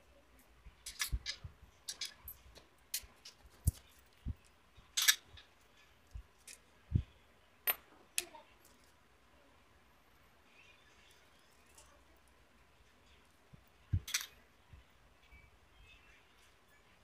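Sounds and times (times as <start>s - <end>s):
metal tools clinking and knocking: 0.8s - 4.3s, 4.9s - 6.6s, 7.6s - 7.9s, 13.9s - 14.4s.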